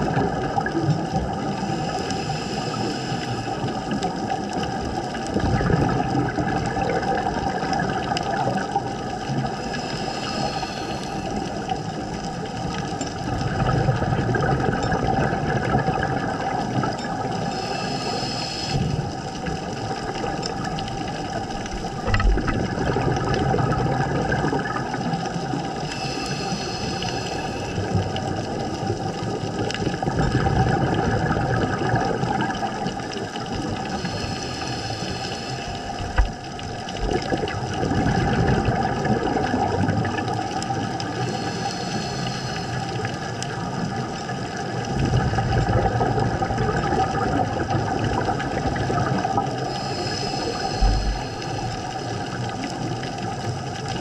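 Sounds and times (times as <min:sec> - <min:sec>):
exhaled bubbles rumbling: 0:00.0 - 0:54.0
scuba regulator hissing: 0:17.5 - 0:19.2, 0:25.8 - 0:27.8, 0:49.7 - 0:52.0.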